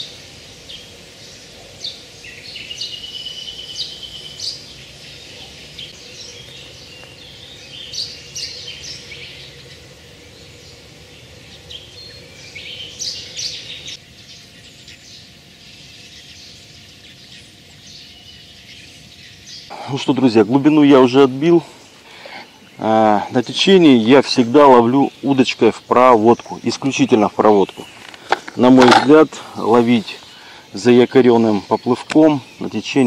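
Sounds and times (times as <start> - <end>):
songbirds chirping: 0.0 - 33.0.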